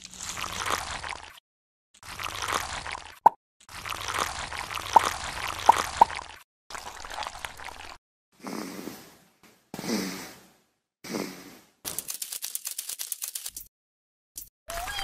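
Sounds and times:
cartoon snoring: 8.4s - 9.2s, 9.8s - 10.4s, 11.0s - 11.8s.

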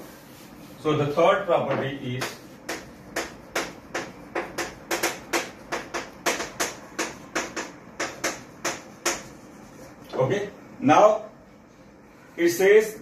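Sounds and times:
chalk tapping on chalkboard: 1.6s - 10.2s.

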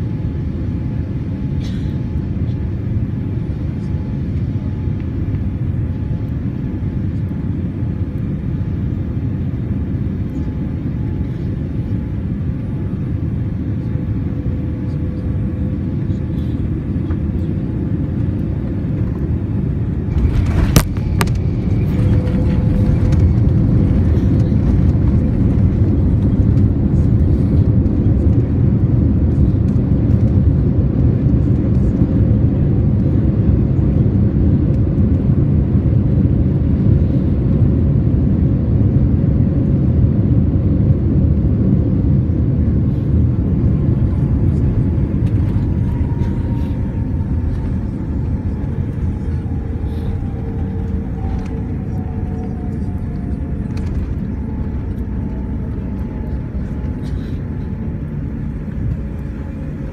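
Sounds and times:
aircraft runway rumble: 0.0s - 59.9s
faint falling whine: 14.7s - 28.4s, 42.3s - 59.9s.

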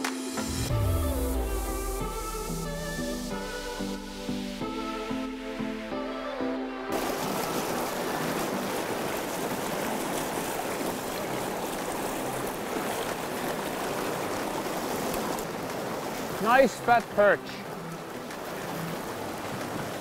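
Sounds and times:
stream rapids rushing: 0.2s - 20.0s.

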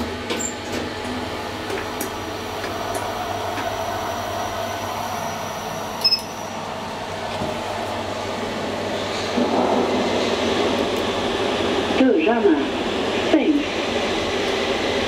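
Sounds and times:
elevator button double beep: 6.0s - 6.4s.

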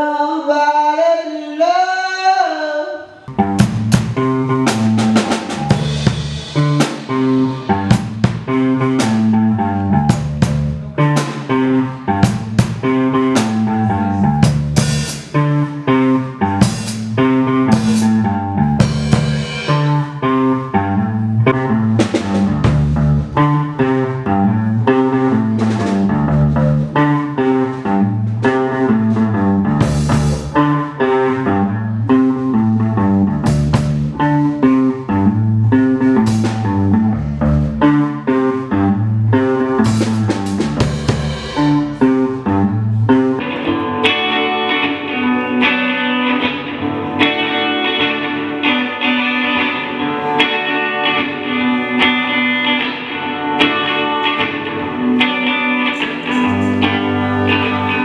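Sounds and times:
electric guitar: 2.9s - 58.0s
electric bass line: 3.3s - 58.0s
drum kit with cymbal crashes: 3.4s - 15.7s, 16.6s - 20.1s, 29.8s - 30.7s, 36.2s - 36.9s, 39.8s - 42.4s, 56.0s - 57.4s.

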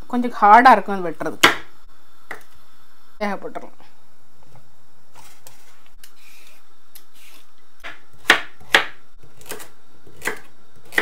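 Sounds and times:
knife chopping on wooden board: 1.4s - 1.7s, 7.8s - 11.0s.

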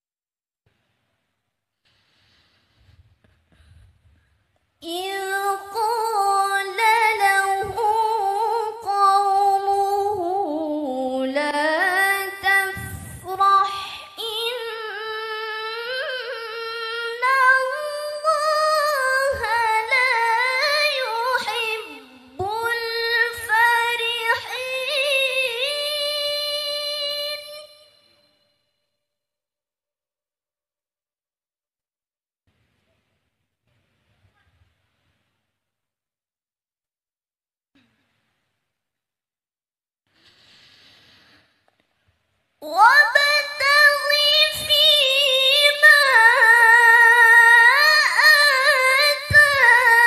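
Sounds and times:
woman reciting melodically: 4.8s - 27.9s, 42.6s - 50.0s.

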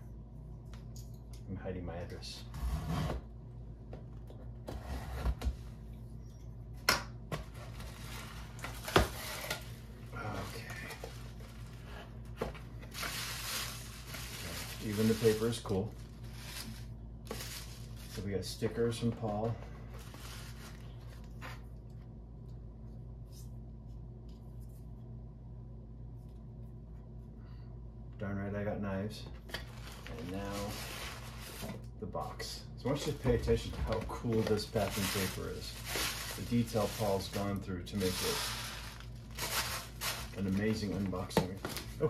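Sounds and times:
steady low hum: 0.0s - 42.0s
paper rustling: 12.8s - 18.3s, 33.1s - 42.0s.

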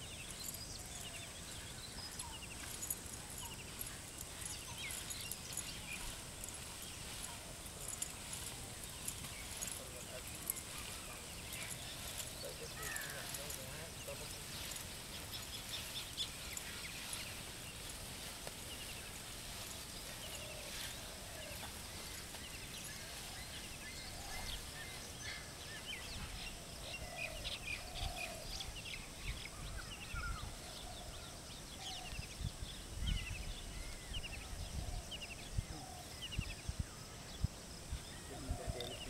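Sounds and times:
birds warbling: 0.0s - 31.0s
birds chirping: 0.0s - 39.0s
open-air background noise: 0.0s - 39.0s.

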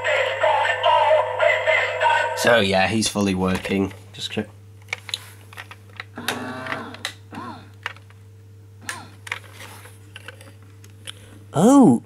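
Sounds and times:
plastic toy clicks and handling: 7.8s - 8.2s, 9.2s - 10.6s.

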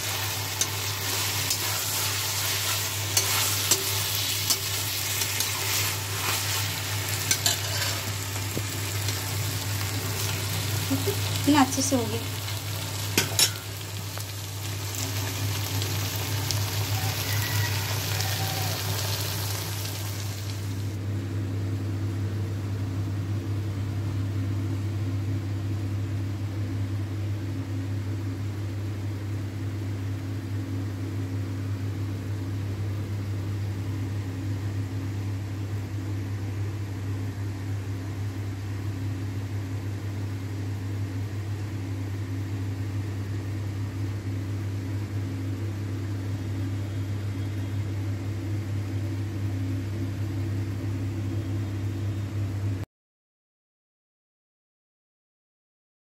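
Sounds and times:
food sizzling in hot pan: 0.0s - 21.0s
low mechanical hum: 0.0s - 52.8s.

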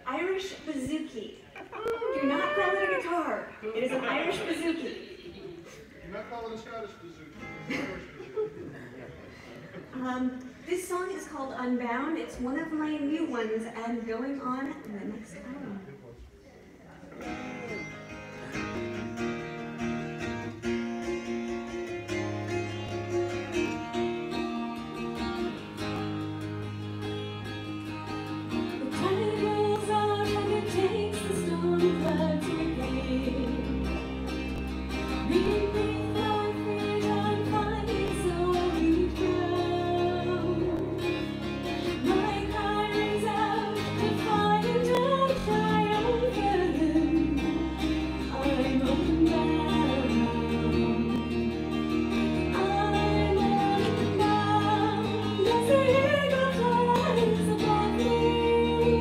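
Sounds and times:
plucked bouzouki: 17.2s - 59.0s
woman singing: 28.7s - 34.2s, 35.1s - 59.0s.

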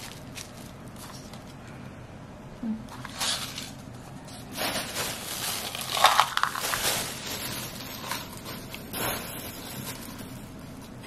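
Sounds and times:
dried fish rustling in a pan: 3.0s - 11.0s.

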